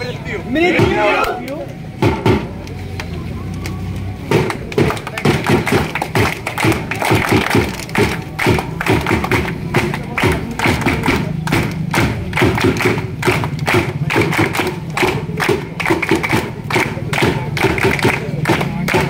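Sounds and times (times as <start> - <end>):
group clapping hands: 0.8 - 19.0
drum beating fast rhythm: 4.3 - 19.0.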